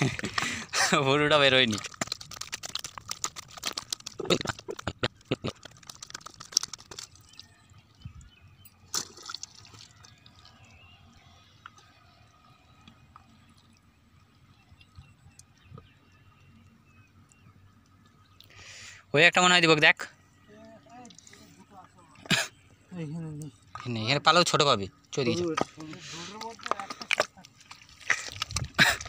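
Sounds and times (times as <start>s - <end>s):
wet mud squelching and slapping: 0.0s - 7.6s, 8.9s - 10.9s, 25.6s - 29.0s.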